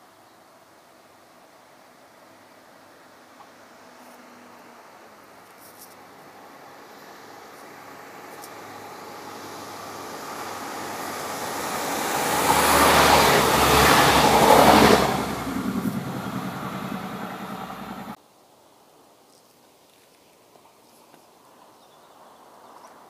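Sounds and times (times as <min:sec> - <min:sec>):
low engine hum: 0:06.1 - 0:18.2
train rumbling past: 0:06.2 - 0:18.2.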